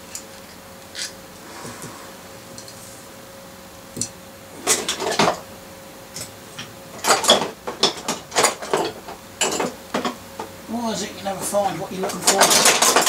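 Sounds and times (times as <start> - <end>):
metal tools clinking in toolbox: 6.6 - 9.7, 12.0 - 13.0.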